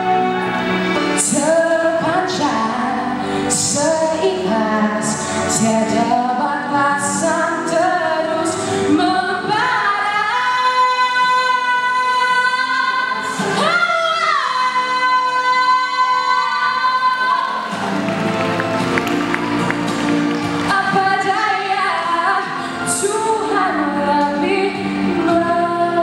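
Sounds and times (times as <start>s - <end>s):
girl singing into a microphone: 1.2s - 17.7s, 20.7s - 26.0s.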